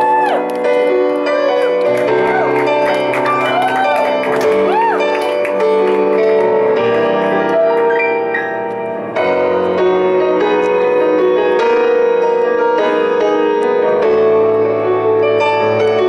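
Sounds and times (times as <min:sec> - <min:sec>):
electric piano chords: 0:00.0 - 0:16.0.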